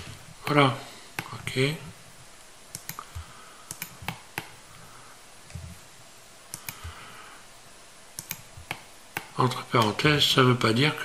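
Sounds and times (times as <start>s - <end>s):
faint room hiss: 0.0s - 11.0s
mouse and keyboard clicks: 2.7s - 4.6s, 6.5s - 6.9s, 8.2s - 10.0s.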